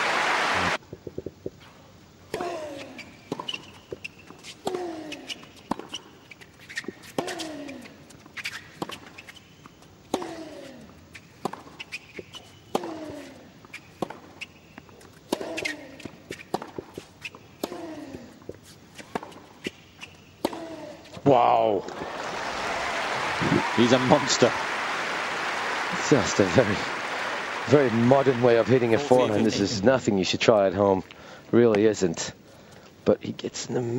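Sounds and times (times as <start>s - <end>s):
tennis ball bouncing: 3.3s - 6.1s, 11.2s - 21.2s
racket striking tennis ball: 11.4s - 14.5s, 20.4s - 20.8s.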